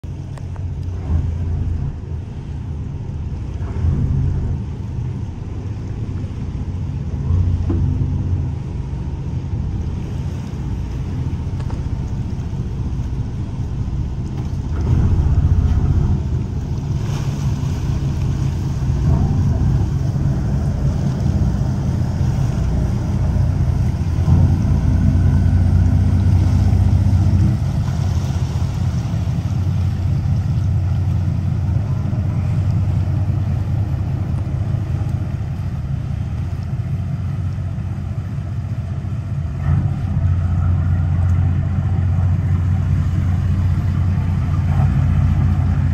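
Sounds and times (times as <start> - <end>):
motor yacht engines rumbling: 0.0 - 45.9.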